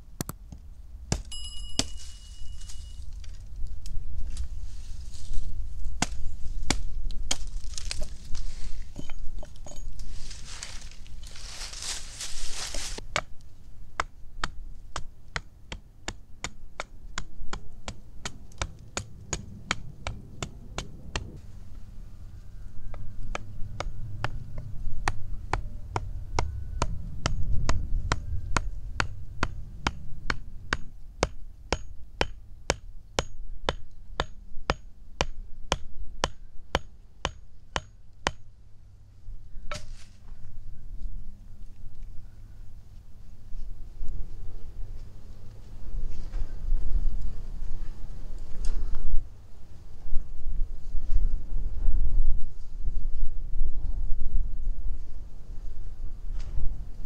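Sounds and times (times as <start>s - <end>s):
twigs rustling: 1.8s - 13.5s, 39.7s - 42.2s
low rumble: 17.7s - 34.0s.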